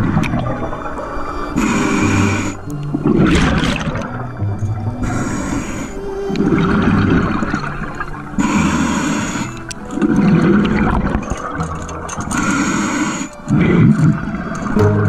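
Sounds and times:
exhaled bubbles rumbling: 0.0s - 8.5s, 9.4s - 12.5s
regulator hissing inhalation: 1.3s - 2.6s, 5.0s - 6.2s, 8.4s - 9.7s, 12.3s - 14.3s.

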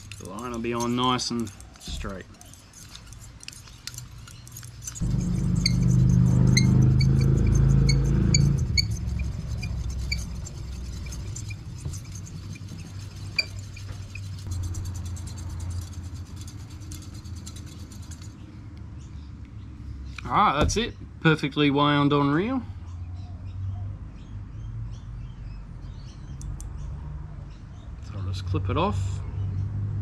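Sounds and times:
fishing reel whirring: 2.8s - 15.0s.

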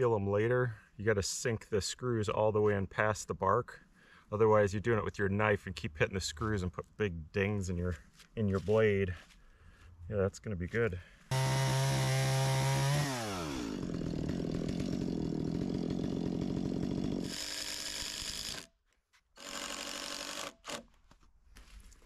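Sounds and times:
power tool whining: 11.3s - 18.7s.

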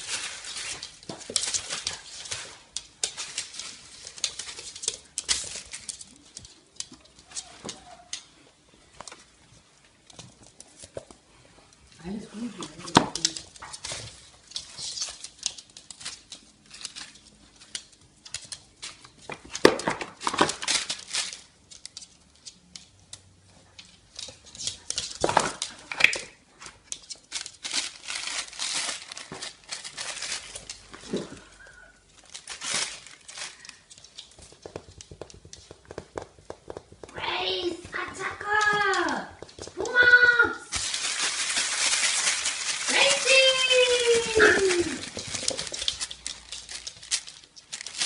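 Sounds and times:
dog rummaging through paper: 0.0s - 6.1s, 27.2s - 31.6s, 32.2s - 33.9s, 40.7s - 48.0s
paper crinkling and tearing: 0.0s - 6.6s, 12.8s - 21.6s, 27.0s - 31.4s, 32.1s - 34.3s, 39.8s - 48.0s.

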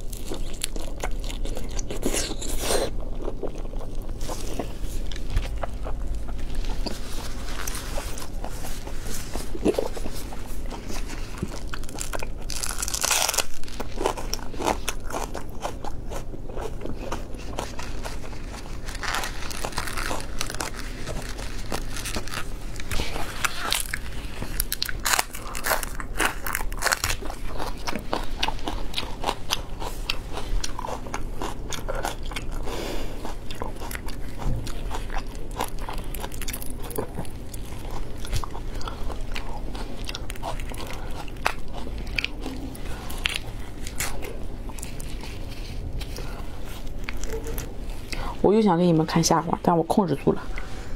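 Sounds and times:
wet chewing: 0.0s - 48.3s
prawn shells cracking: 11.7s - 15.4s.

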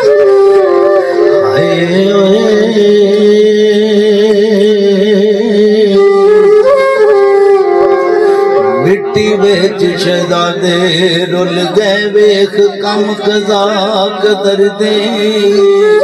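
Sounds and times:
man singing through microphone: 1.4s - 6.3s, 8.6s - 16.0s.

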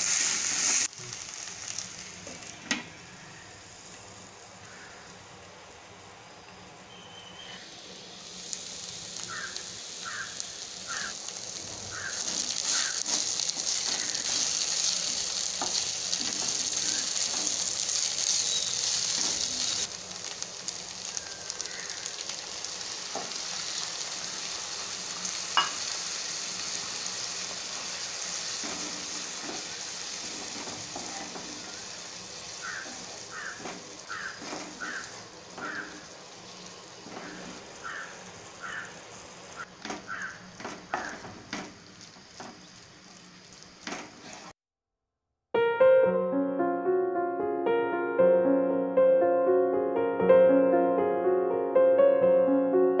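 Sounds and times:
vegetables sizzling in hot oil: 0.0s - 44.6s.

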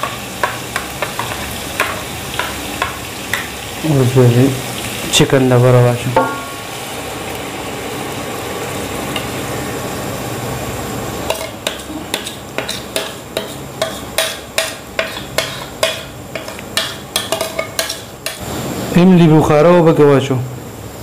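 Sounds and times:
food sizzling in a pot: 0.0s - 19.4s.

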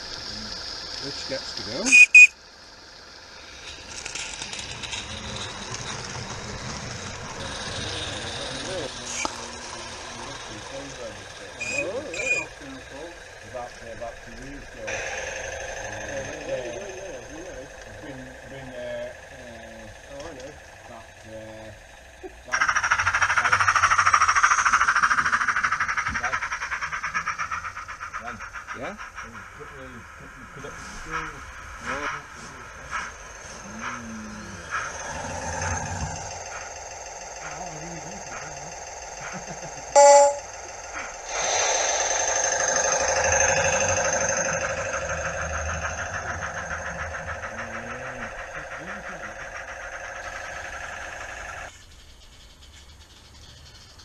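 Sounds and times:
hissing exhaust beats: 0.0s - 51.7s
simulated diesel engine throbbing: 0.0s - 51.7s
small steam locomotive chuffing: 0.0s - 54.0s
model train horn toot: 1.9s - 2.3s, 40.0s - 40.5s.

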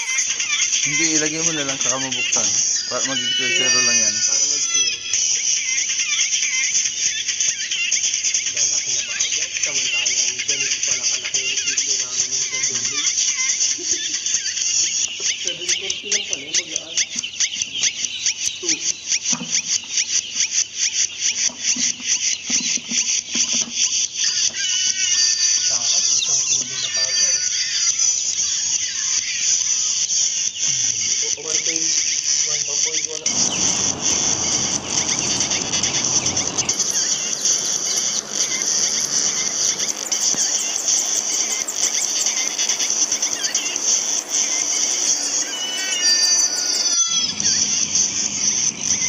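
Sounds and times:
chicks peeping: 33.3s - 49.0s.

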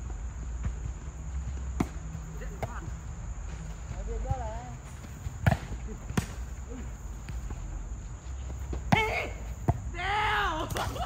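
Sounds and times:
volleyball being hit: 5.4s - 6.5s.

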